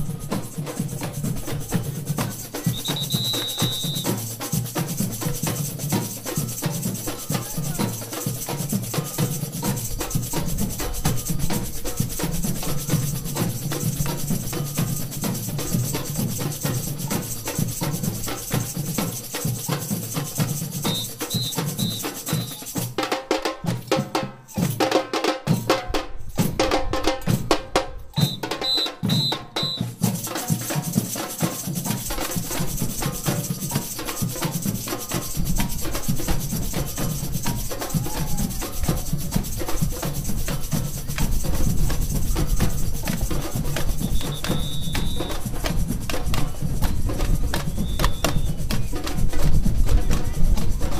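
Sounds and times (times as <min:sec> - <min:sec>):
metal shakers hissing: 0:00.0 - 0:23.0, 0:28.6 - 0:50.9
samba drum band playing: 0:00.0 - 0:50.9
short high pips: 0:02.7 - 0:04.1.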